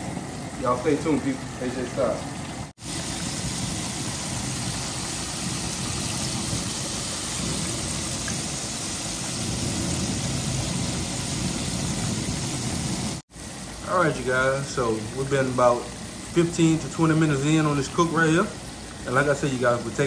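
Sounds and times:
meat deep-frying in oil: 0:00.0 - 0:20.0.

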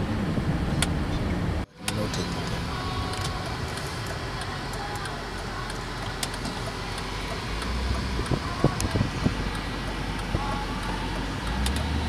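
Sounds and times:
car engine running: 0:00.0 - 0:12.0
tyre and road noise: 0:00.0 - 0:12.0
faint clicks: 0:03.1 - 0:07.7.

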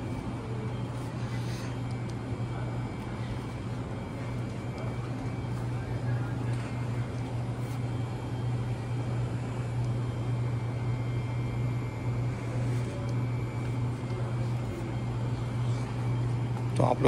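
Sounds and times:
ventilation and refrigeration hum: 0:00.0 - 0:17.0.

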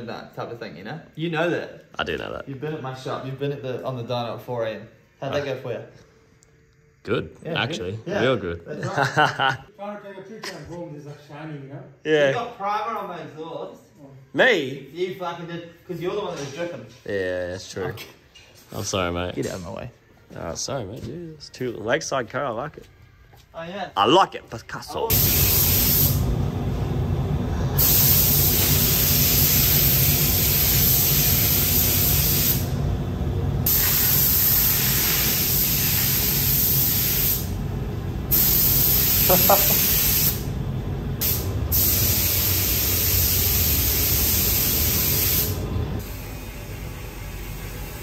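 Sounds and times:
paint spray gun hissing: 0:25.1 - 0:26.3, 0:27.8 - 0:32.8, 0:33.6 - 0:37.6, 0:38.3 - 0:40.5, 0:41.2 - 0:46.8
steady low hum: 0:25.1 - 0:48.0.

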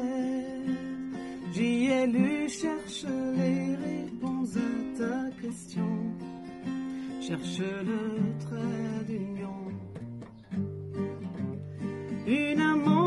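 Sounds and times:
woman singing slow song: 0:01.6 - 0:06.2, 0:12.2 - 0:13.0.

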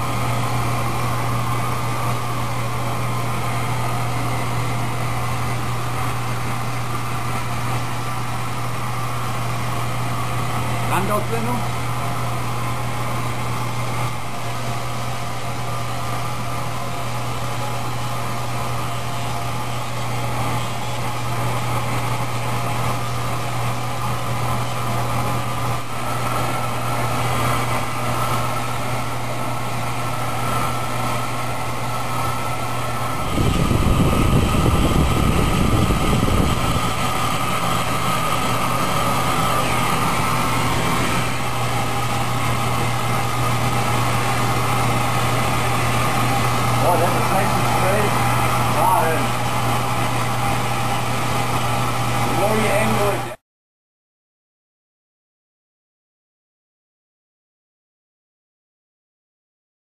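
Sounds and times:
machine hum: 0:00.0 - 0:53.4
loud low rumble: 0:32.8 - 0:37.8.

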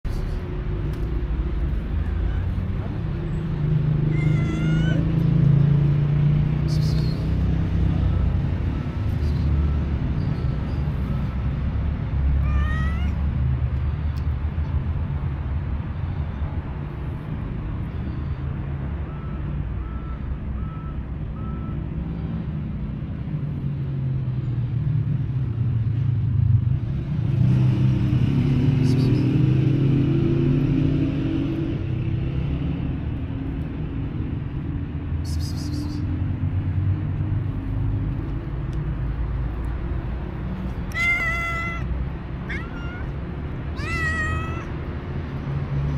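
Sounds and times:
low rumble of traffic: 0:00.0 - 0:45.9
cat meowing: 0:02.0 - 0:02.9, 0:04.0 - 0:05.3, 0:12.4 - 0:13.3, 0:40.7 - 0:44.9.

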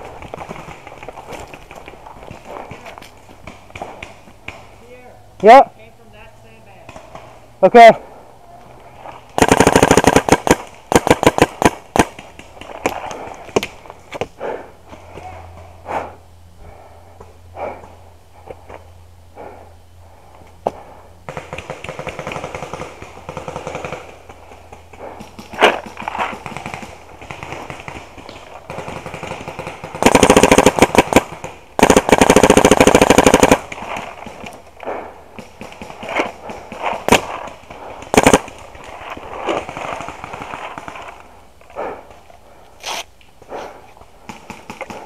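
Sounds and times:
distant rapid paintball fire: 0:00.0 - 0:04.8, 0:09.4 - 0:13.8, 0:20.6 - 0:42.2, 0:44.2 - 0:45.0
paintball marker rapid firing: 0:09.4 - 0:13.8, 0:20.7 - 0:41.2, 0:44.2 - 0:45.0.

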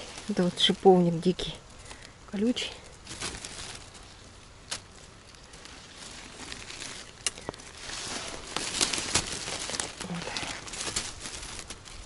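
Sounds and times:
brush rustling and crackling: 0:00.0 - 0:12.0
twig snapping: 0:02.8 - 0:12.0.

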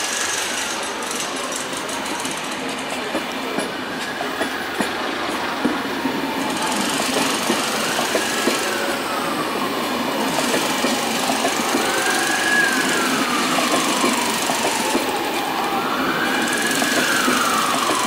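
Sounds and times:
train wheels clicking over rail joints: 0:00.0 - 0:09.0, 0:10.2 - 0:18.0
siren wailing: 0:03.8 - 0:18.0.

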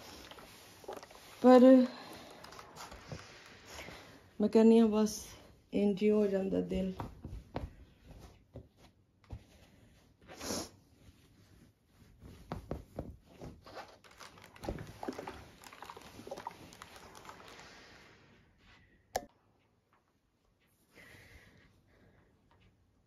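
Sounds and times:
fabric rustling: 0:00.0 - 0:04.4, 0:06.4 - 0:19.0.

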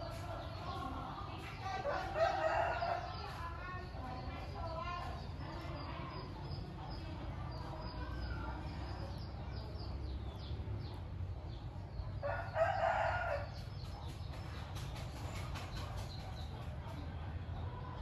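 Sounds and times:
rooster crowing: 0:12.2 - 0:13.5.

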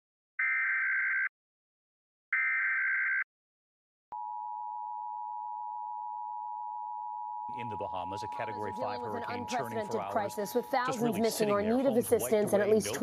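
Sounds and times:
two-tone attention signal: 0:07.6 - 0:10.9
buzzy digital data tones: 0:07.6 - 0:12.3.

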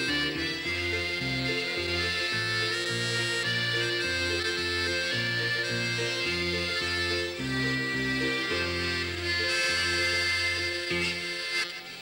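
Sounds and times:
dance band playing: 0:00.0 - 0:11.5.

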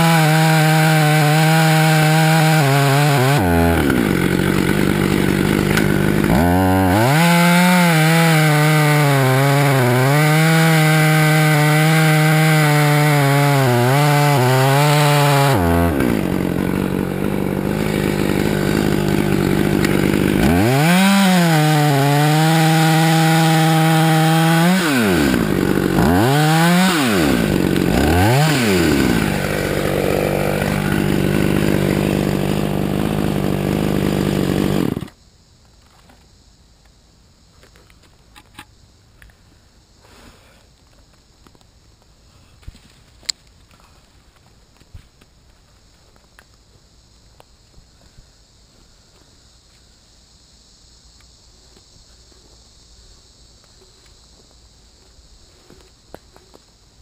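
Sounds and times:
chainsaw revving and idling: 0:00.0 - 0:35.2.

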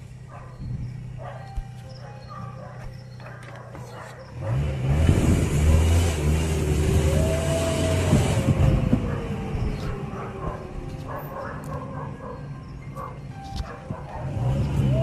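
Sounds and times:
dog howling: 0:09.0 - 0:14.4.

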